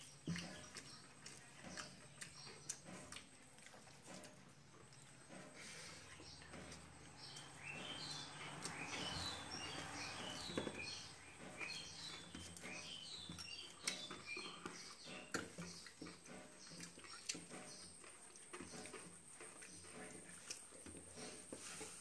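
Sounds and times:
small bird chirping: 0:00.0 - 0:03.2, 0:05.8 - 0:19.0.

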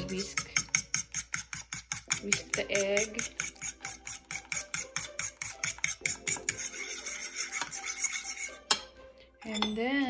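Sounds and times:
fork whisking egg in bowl: 0:00.0 - 0:08.9.

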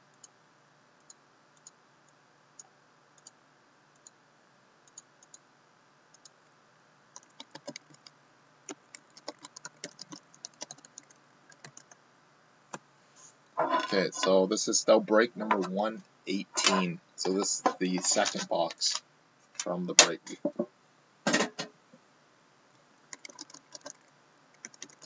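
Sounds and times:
laptop keyboard typing: 0:06.1 - 0:06.3, 0:07.1 - 0:08.1, 0:08.7 - 0:12.0, 0:23.1 - 0:25.0.

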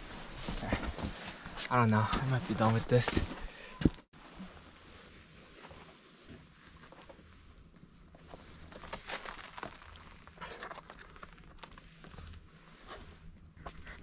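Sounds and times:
scuffs and clicks of people moving: 0:00.1 - 0:04.1.

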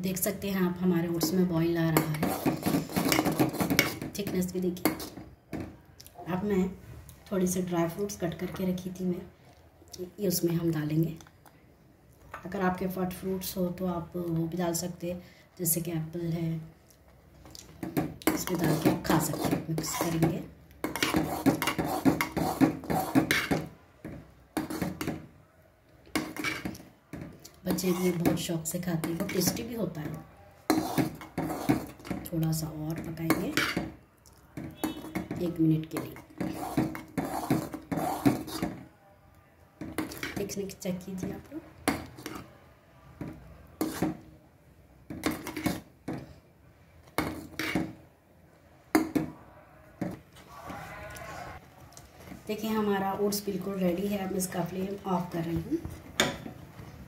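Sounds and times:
metal spoon scraping a pot: 0:01.2 - 0:05.2, 0:18.2 - 0:23.7, 0:24.6 - 0:25.2, 0:26.1 - 0:26.8, 0:27.7 - 0:29.7, 0:30.7 - 0:32.3, 0:32.9 - 0:33.9, 0:34.6 - 0:38.8, 0:40.0 - 0:40.6, 0:41.9 - 0:42.5, 0:43.8 - 0:44.2, 0:45.2 - 0:45.9, 0:47.2 - 0:48.0.

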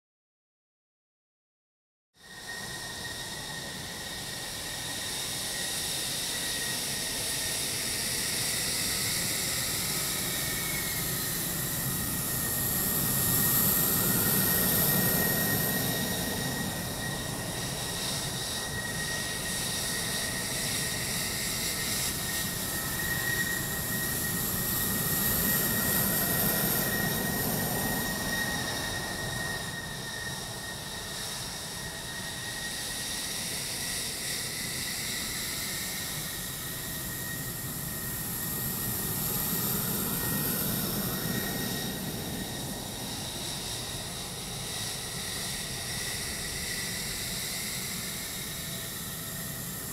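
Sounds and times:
jet engine rumble and whine: 0:02.2 - 0:49.9.

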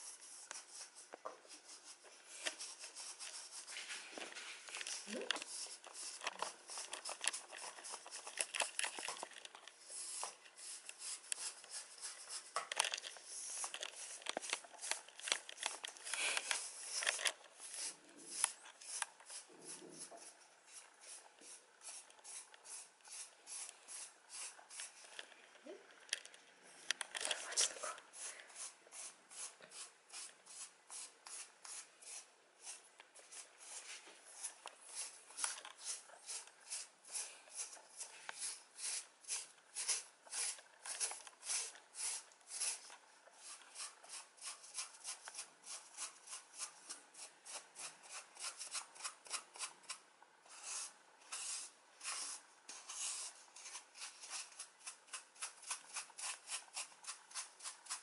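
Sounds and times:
cat fur being rubbed: 0:00.0 - 0:08.3.

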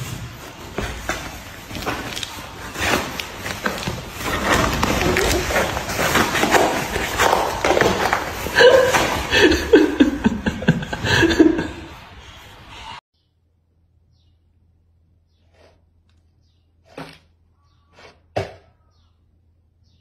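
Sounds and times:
cardboard box crackling and scraping: 0:00.0 - 0:09.2.

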